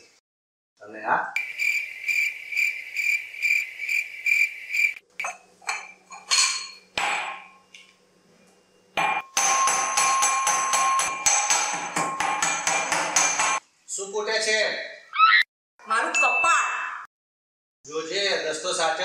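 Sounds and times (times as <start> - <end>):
cricket chirping: 1.4 - 5.4
clinks and knocks: 5.2 - 7.8
metal pestle pounding in mortar: 9.0 - 13.6.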